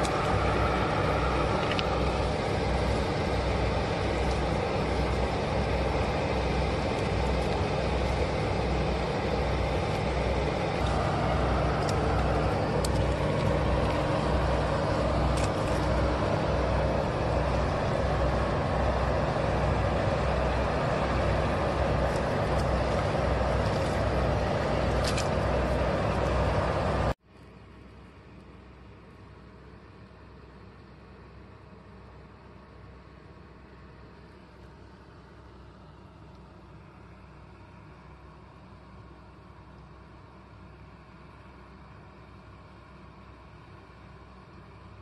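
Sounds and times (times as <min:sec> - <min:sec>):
low repeating throb: 0:00.0 - 0:27.2.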